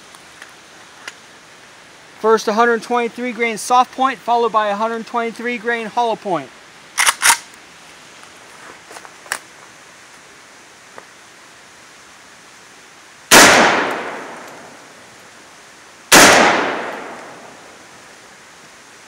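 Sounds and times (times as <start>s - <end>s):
faint rifle handling clicks: 7.0s - 7.6s
rifle shots echoing: 13.3s - 14.9s, 16.1s - 17.8s.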